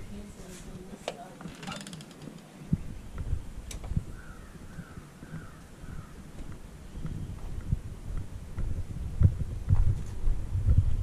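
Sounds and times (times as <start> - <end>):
crow cawing: 4.1 - 6.2
heavy footsteps thumping: 6.3 - 10.8.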